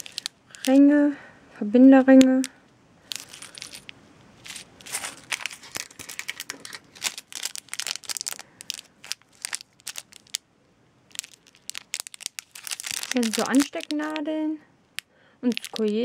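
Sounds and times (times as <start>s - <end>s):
plastic bags crinkling: 0.0s - 0.8s, 3.1s - 10.4s, 11.1s - 14.4s, 15.0s - 16.0s.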